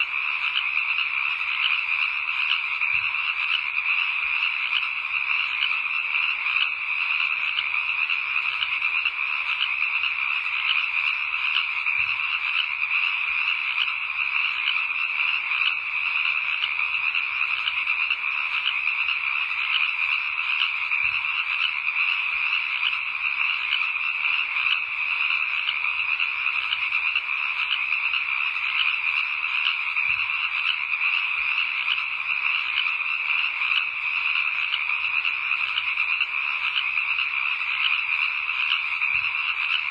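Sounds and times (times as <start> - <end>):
chorus of calling frogs: 0.0 - 39.9.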